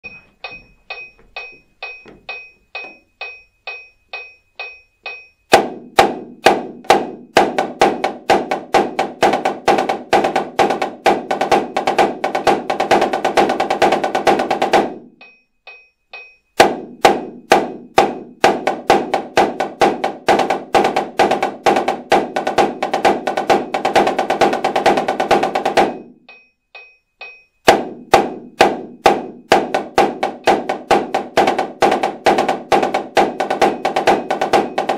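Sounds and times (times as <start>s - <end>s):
metronome clicking: 0.0s - 5.5s, 15.2s - 16.6s
marching snare drum: 5.5s - 15.1s, 16.6s - 26.1s, 27.7s - 34.9s.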